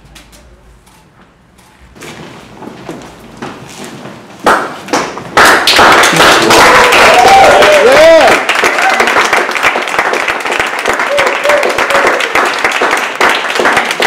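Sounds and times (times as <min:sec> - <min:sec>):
audience applause: 0:05.4 - 0:14.0.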